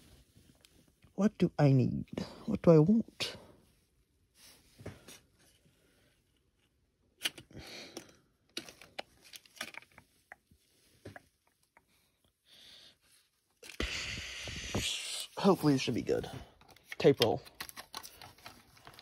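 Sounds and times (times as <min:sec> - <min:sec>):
rummaging rustles and clicks: 0:07.2 - 0:11.1, 0:15.6 - 0:19.0.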